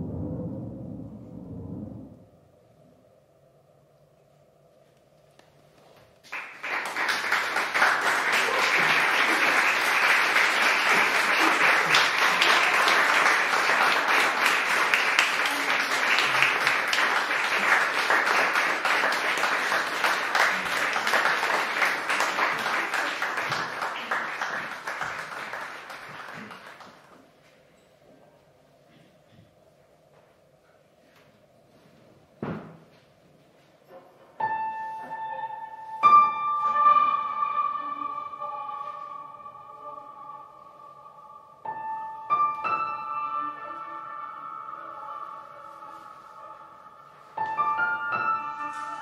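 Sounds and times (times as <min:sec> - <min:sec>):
audience applause: 0:06.2 - 0:27.3.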